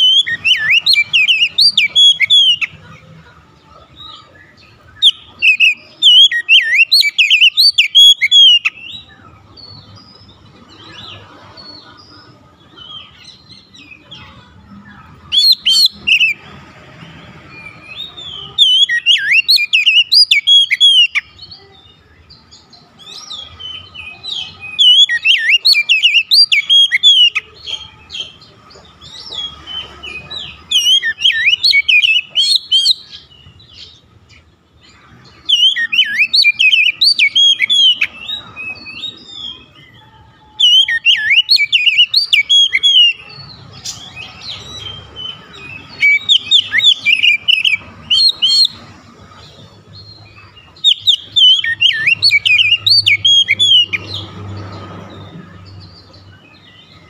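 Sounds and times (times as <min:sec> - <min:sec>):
bird singing whistled phrases: 0:00.0 - 0:02.7, 0:05.0 - 0:09.1, 0:17.6 - 0:21.3, 0:23.2 - 0:27.4, 0:30.4 - 0:33.2, 0:35.5 - 0:39.8, 0:40.5 - 0:48.8, 0:50.8 - 0:54.2.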